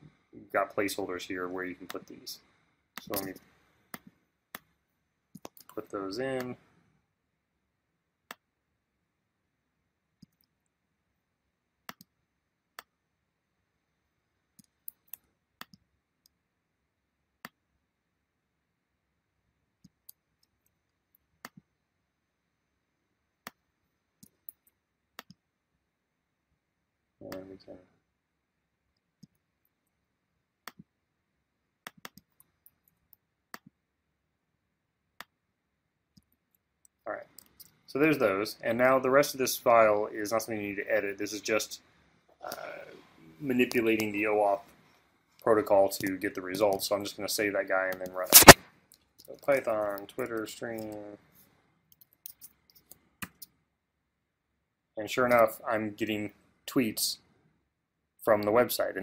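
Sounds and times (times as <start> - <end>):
mouse and keyboard clicks: 31.9 - 32.9, 48.3 - 48.6, 51.9 - 53.5.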